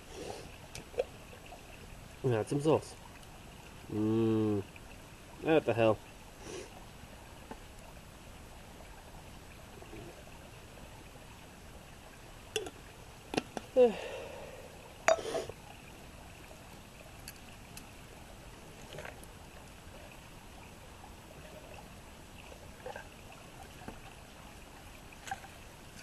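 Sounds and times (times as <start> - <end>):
campfire hissing and crackling: 0.0 - 5.5, 6.2 - 20.1
metal pot clunk: 12.6 - 12.8.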